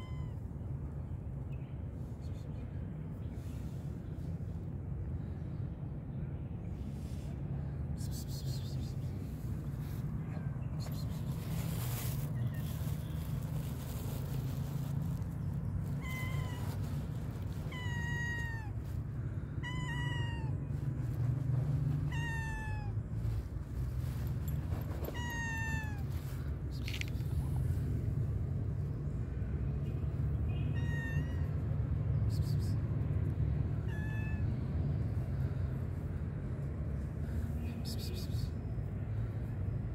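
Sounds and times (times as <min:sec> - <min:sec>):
cat meowing: 0:00.0 - 0:00.5, 0:15.9 - 0:16.9, 0:17.6 - 0:18.8, 0:19.6 - 0:20.8, 0:21.7 - 0:23.1, 0:25.0 - 0:26.2, 0:30.5 - 0:31.6, 0:33.8 - 0:34.5
steady low rumble: 0:00.0 - 0:30.9.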